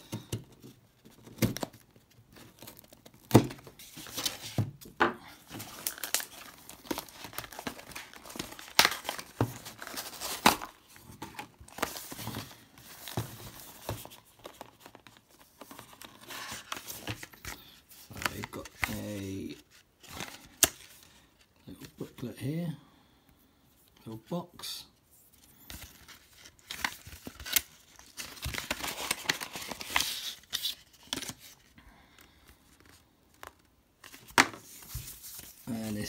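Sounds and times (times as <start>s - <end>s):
wrapping crinkling and tearing: 5.4s - 11.0s, 25.7s - 31.8s.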